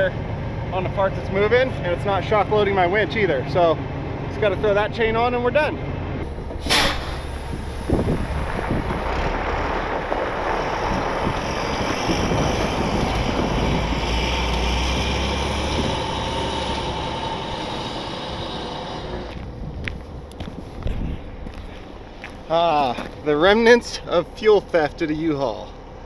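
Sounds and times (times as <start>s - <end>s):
diesel truck engine rumble: 0.0s - 26.0s
short sharp sound: 6.5s - 8.2s.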